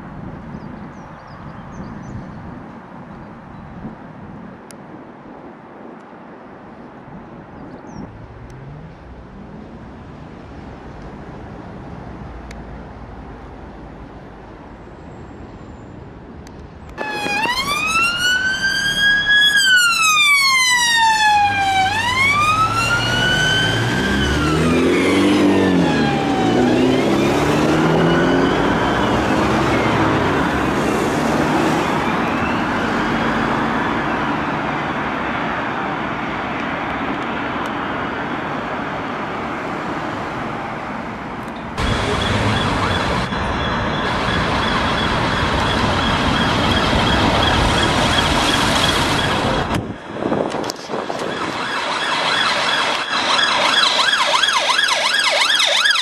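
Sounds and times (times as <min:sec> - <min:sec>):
outdoor background noise: 0:00.0 - 0:56.0
traffic noise: 0:00.0 - 0:56.0
police siren wailing: 0:17.0 - 0:34.2, 0:41.8 - 0:49.9, 0:50.6 - 0:56.0.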